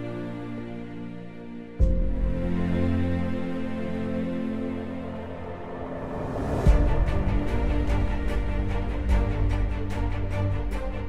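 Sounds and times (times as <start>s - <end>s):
instrumental background music: 0.0s - 11.0s
deep low hit: 5.1s - 10.8s.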